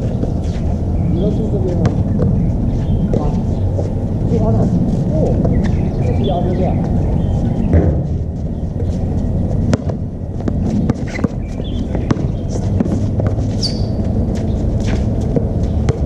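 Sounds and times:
sneakers squeaking: 0.0s - 4.4s, 5.2s - 16.0s
low rumble: 0.0s - 16.0s
basketball bouncing: 9.5s - 16.0s.

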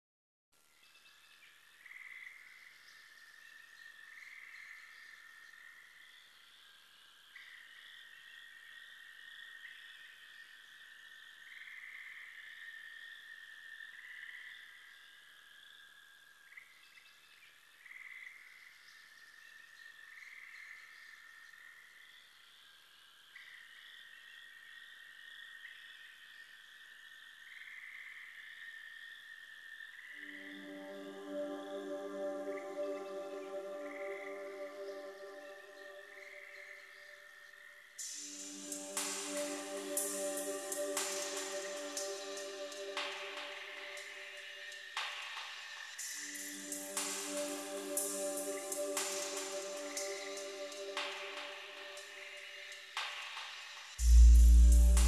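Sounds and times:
high-pitched electronic drone: 54.0s - 55.0s.

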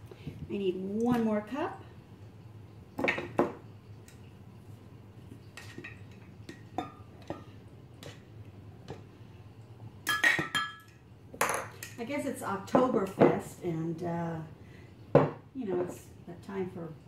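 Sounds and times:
glass clinking: 10.0s - 12.0s.

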